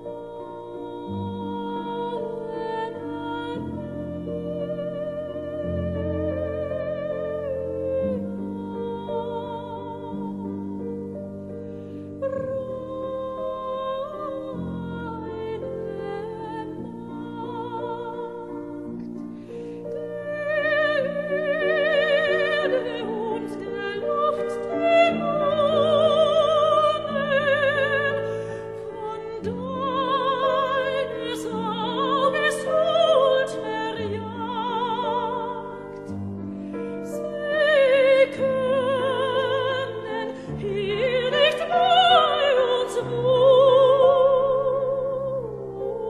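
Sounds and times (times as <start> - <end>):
operatic high voice singing: 20.0 - 35.9.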